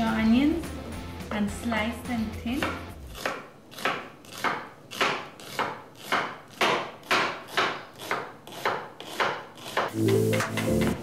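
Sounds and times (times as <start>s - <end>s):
knife slicing onion on board: 2.6s - 10.0s.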